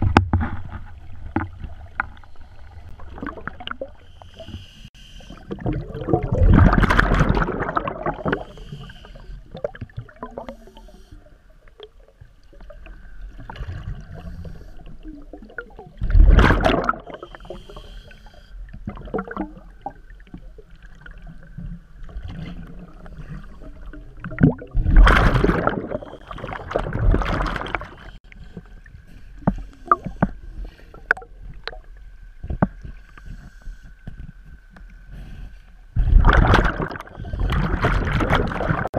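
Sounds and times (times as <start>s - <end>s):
exhaled bubbles rushing: 2.9s - 4.0s, 5.3s - 8.6s, 15.1s - 17.3s, 22.1s - 28.2s, 36.0s - 38.9s.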